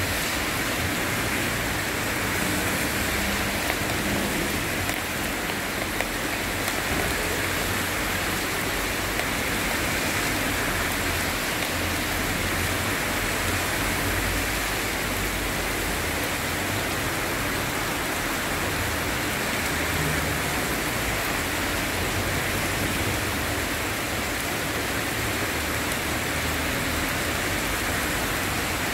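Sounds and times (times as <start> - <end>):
steady rain on pavement: 0.0 - 28.9.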